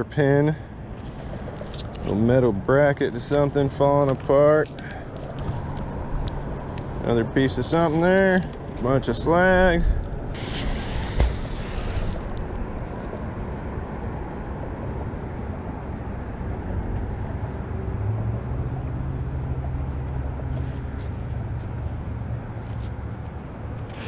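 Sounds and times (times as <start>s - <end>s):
low engine rumble: 0.0s - 24.0s
low steady hum: 0.0s - 24.0s.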